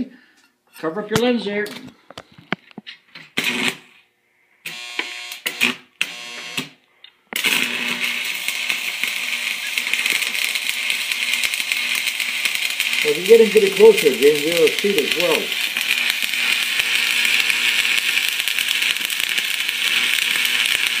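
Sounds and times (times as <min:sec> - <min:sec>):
arc welder crackling hiss: 0:03.3 - 0:04.0, 0:07.4 - 0:21.0.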